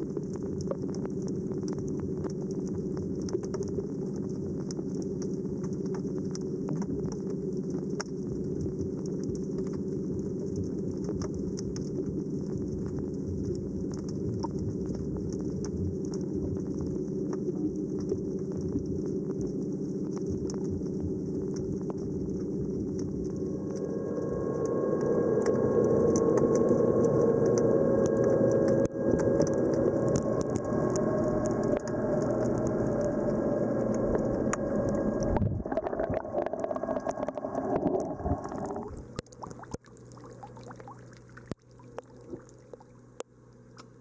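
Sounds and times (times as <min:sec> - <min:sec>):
underwater low drone: 0:00.0 - 0:44.0.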